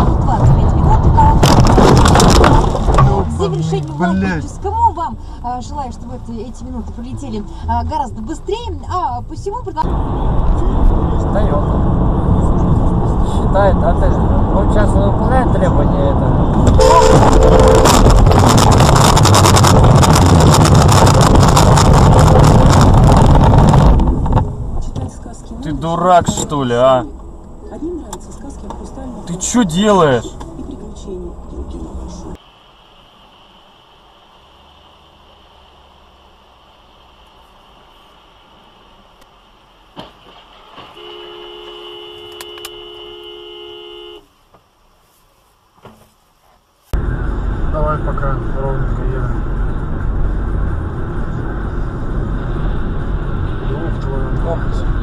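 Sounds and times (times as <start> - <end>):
low road noise: 0.0 - 55.0
vehicle rumble: 0.0 - 55.0
continuous crackle: 0.3 - 4.1, 16.8 - 24.5
car horn: 16.7 - 18.8, 40.8 - 44.4.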